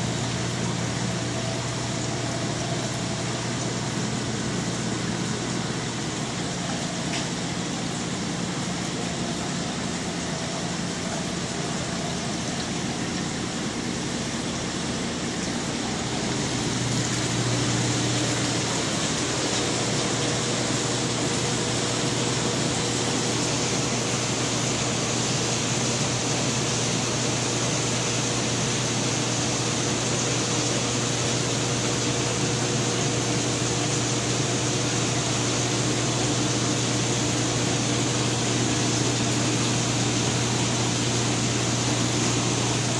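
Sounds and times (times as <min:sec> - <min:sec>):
aquarium pump hum: 0:00.0 - 0:42.9
circulating water hiss: 0:00.0 - 0:42.9.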